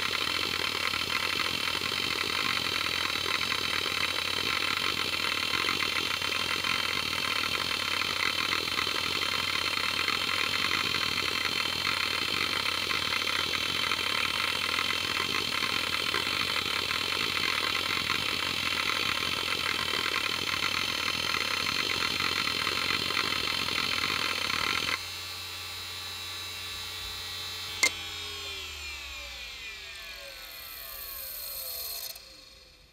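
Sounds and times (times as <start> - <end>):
hard drive seeking chatter: 0.0 - 25.0, 29.9 - 32.9
hard drive spindle whine: 0.0 - 32.9
sharp click: 27.8 - 28.0.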